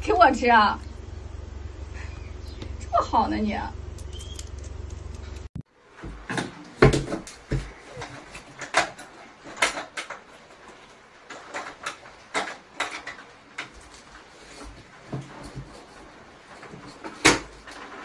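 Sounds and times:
steady low hum: 0:00.0 - 0:05.5.

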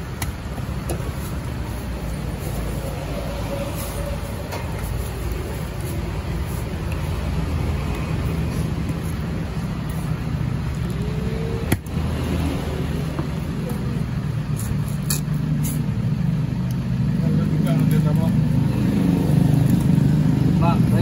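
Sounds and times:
low engine-like rumble: 0:00.0 - 0:21.0.

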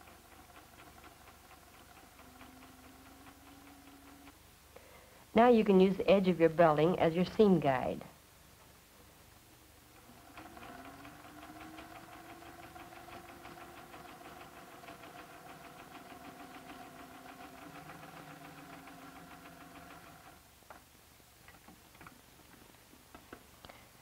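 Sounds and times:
sewing machine stitching: 0:00.0 - 0:04.4, 0:10.0 - 0:20.4.

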